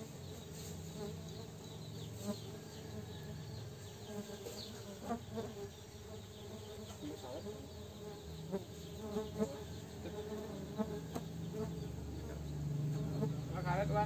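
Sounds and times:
bees buzzing: 0.0s - 14.0s.

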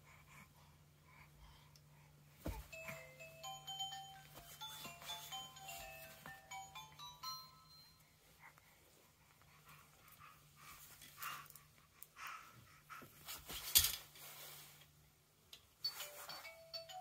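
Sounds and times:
baby toy chime tune: 2.7s - 8.2s, 15.8s - 17.0s.

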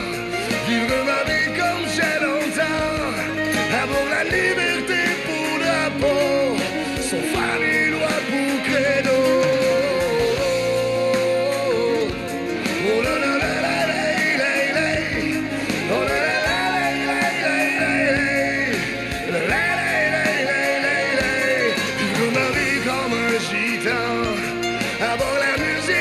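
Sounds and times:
band playing: 0.0s - 26.0s
man singing: 0.0s - 26.0s.

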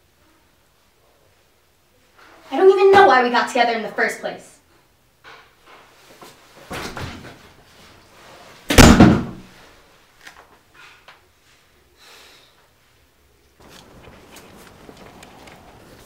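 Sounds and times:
door slamming shut: 8.7s - 9.5s.

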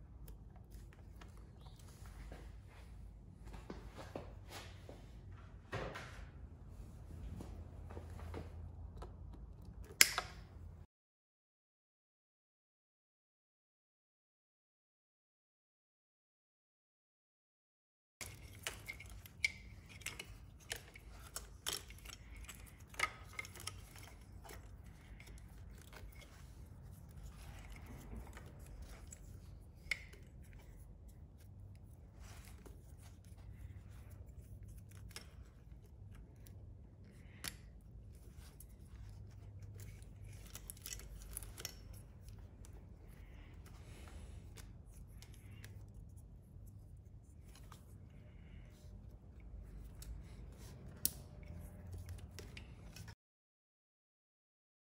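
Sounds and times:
plastic connectors clicking: 9.0s - 10.6s, 18.2s - 26.4s.

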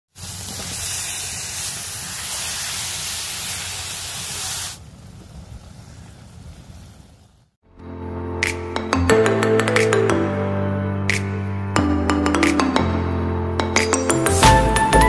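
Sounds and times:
faint hiss: 0.2s - 7.5s.

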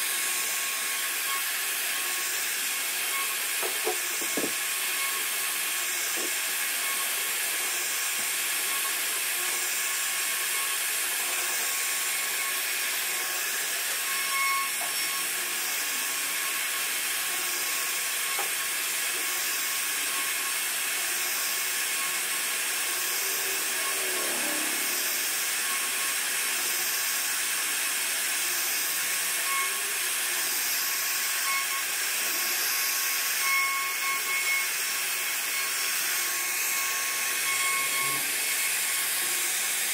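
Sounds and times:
router cutting wood: 0.0s - 39.9s.

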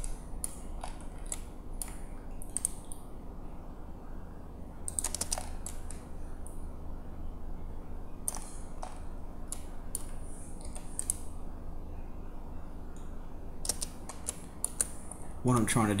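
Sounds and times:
keyboard and mouse clicks: 0.0s - 3.0s, 4.9s - 6.1s, 8.2s - 11.3s, 13.0s - 15.2s
steady low hum: 0.0s - 16.0s.

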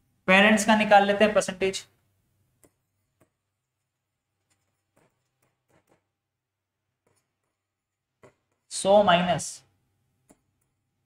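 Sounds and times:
marker tapping and writing on board: 2.5s - 6.2s, 6.9s - 8.7s, 10.2s - 10.9s.

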